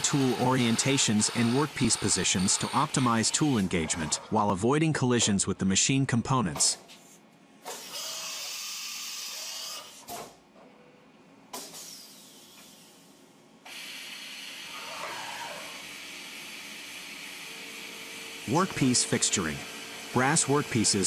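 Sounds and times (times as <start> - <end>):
milling machine cutting metal: 0.0 - 4.3.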